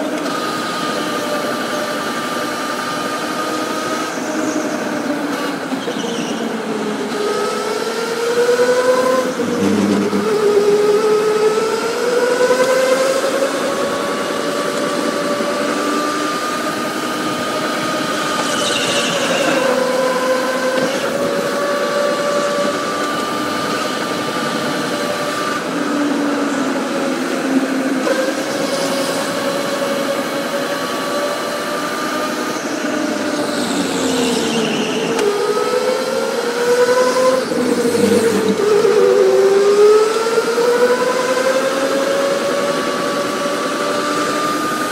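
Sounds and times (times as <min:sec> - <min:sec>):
electric go-kart motor whining: 0:00.0 - 0:44.9.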